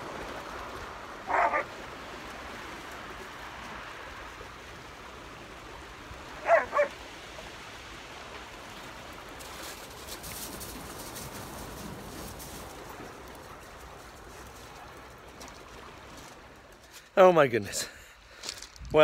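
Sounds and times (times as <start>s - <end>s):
sea washing: 0.0s - 17.4s
dog barking: 1.3s - 1.7s, 6.4s - 6.9s.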